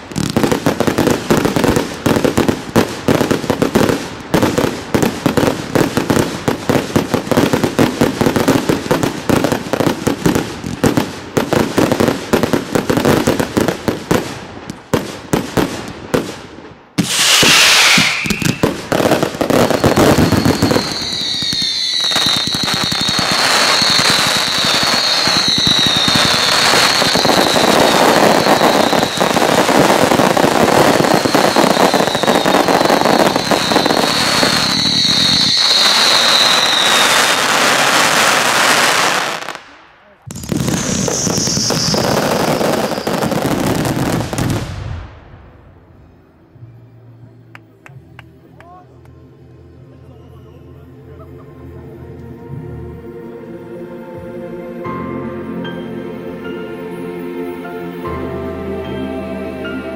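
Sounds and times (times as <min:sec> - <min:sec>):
firework bangs: 0:00.0 - 0:45.8
firework crackling: 0:00.0 - 0:46.2
shrill firework whistles: 0:17.0 - 0:39.6, 0:40.3 - 0:44.6
falling firework whistle: 0:17.0 - 0:39.7, 0:40.3 - 0:44.9.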